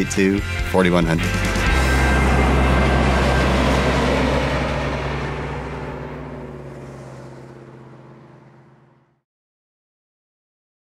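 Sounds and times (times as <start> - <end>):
low steady drone: 0.5 - 9.2
held low tones: 0.8 - 9.2.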